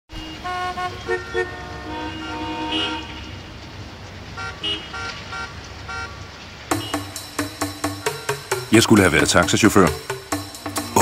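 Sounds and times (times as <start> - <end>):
car horns honking: 0.1 - 3.5, 4.3 - 8.7
traffic rumble: 0.1 - 11.0.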